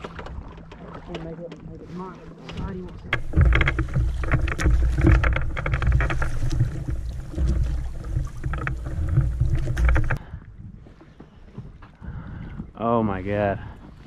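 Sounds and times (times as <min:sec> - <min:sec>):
lapping water: 0:00.0 - 0:10.4
oars dipping and pulling: 0:00.0 - 0:14.0
water splashing and rushing: 0:00.0 - 0:14.0
heavy low rumble: 0:03.0 - 0:10.2.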